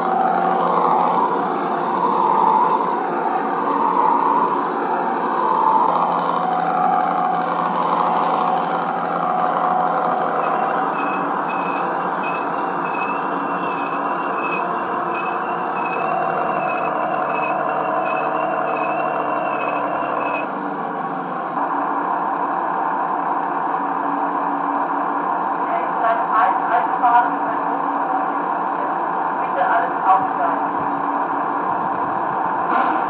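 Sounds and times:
model train running on track: 0.0 - 33.0
high beeps: 9.2 - 20.5.

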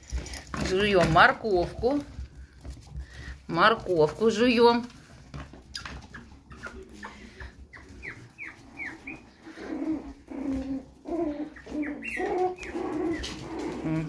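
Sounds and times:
puppies squeaking: 5.6 - 14.0
puppies whining: 5.6 - 14.0.

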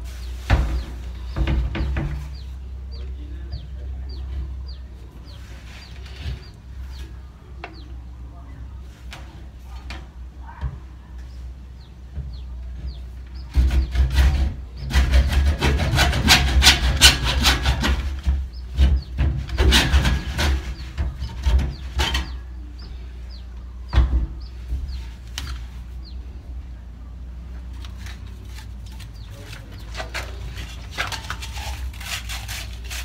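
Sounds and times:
hacksaw cutting plastic pipe: 13.5 - 18.3, 19.5 - 20.8, 28.0 - 33.0.

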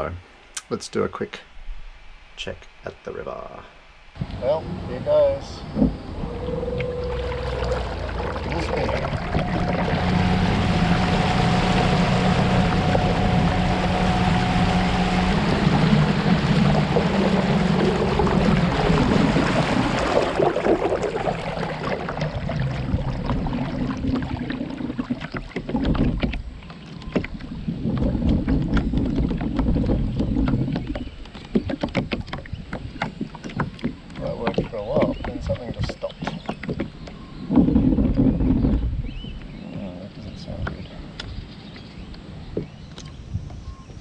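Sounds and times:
water rushing past hull: 4.1 - 42.8
electric motor hum: 4.2 - 24.3
wind on microphone: 4.2 - 44.0.

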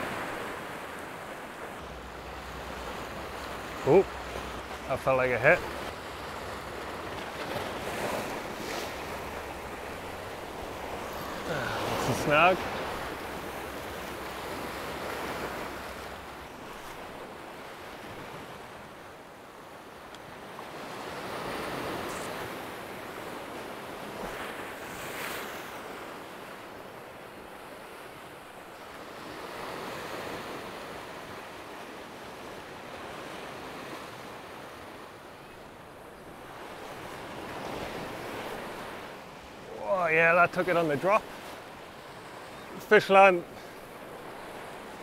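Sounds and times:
waves washing against rocks: 0.0 - 17.2.

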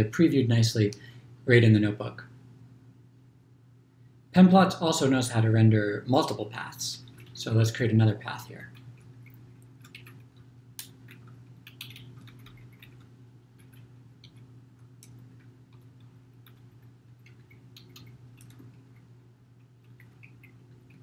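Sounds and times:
steady low hum: 0.0 - 21.0
keyboard and mouse clicks: 8.7 - 21.0.

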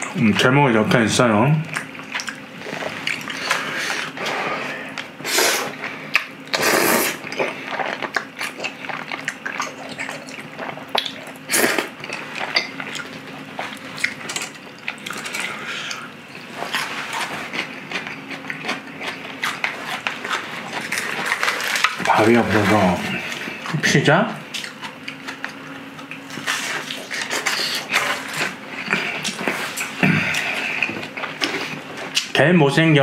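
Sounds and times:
chewing: 1.6 - 23.9, 24.5 - 32.4
person slurping noodles: 2.7 - 5.8, 6.6 - 7.9.

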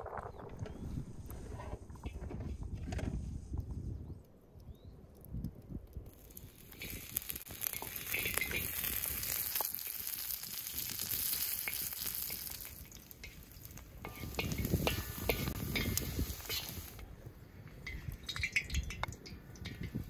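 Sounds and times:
fat sizzling in a hot pan: 6.1 - 17.0
spatula scraping and tapping metal: 6.7 - 9.7, 11.6 - 17.1, 17.7 - 20.0.

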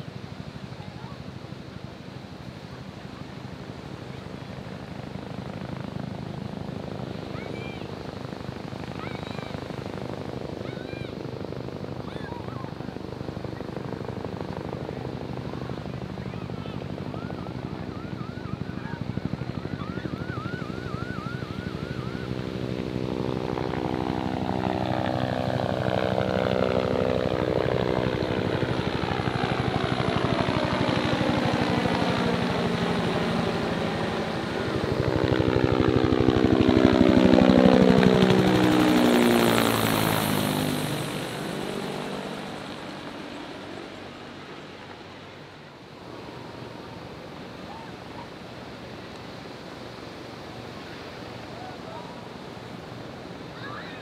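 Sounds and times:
helicopters flying past: 0.0 - 54.0.

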